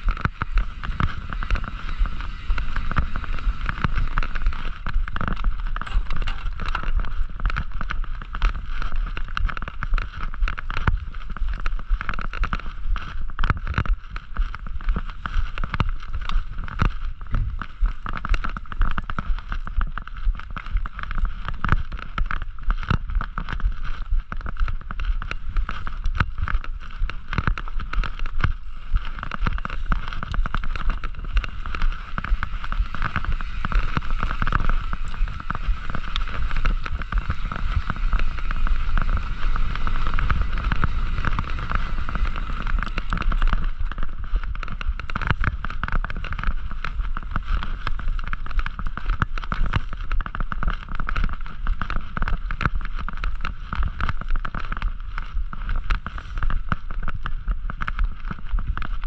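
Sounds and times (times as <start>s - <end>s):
steady whir: 0.0s - 8.7s, 28.5s - 47.2s
bike rattling and clicking: 0.0s - 59.0s
wind rumbling on microphone: 0.0s - 59.0s.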